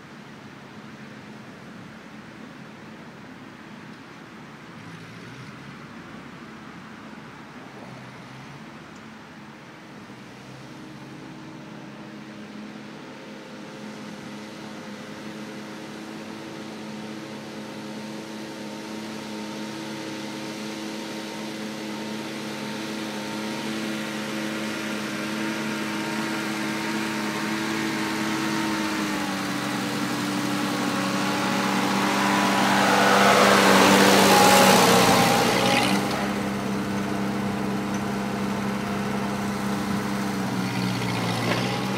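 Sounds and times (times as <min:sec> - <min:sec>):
tractor engine running under load: 0:13.4 - 0:41.9.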